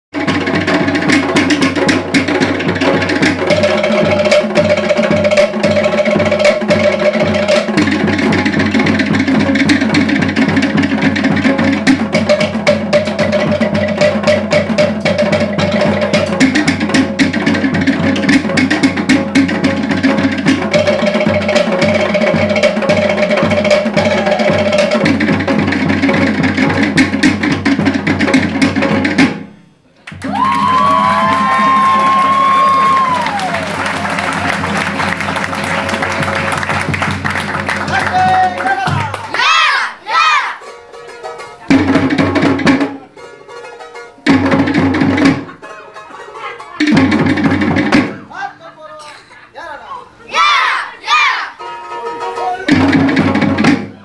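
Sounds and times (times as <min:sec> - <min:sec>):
fast drumming on slit drums: 0:00.2 - 0:29.5, 0:30.2 - 0:39.6, 0:41.0 - 0:43.1, 0:44.2 - 0:45.7, 0:46.6 - 0:48.3, 0:52.3 - 0:54.0
held melodic line: 0:51.6 - 0:52.8.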